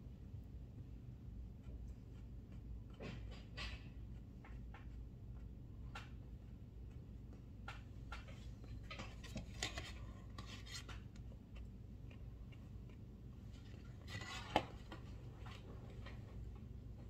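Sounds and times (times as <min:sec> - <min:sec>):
person chewing: 0:09.8 - 0:14.1.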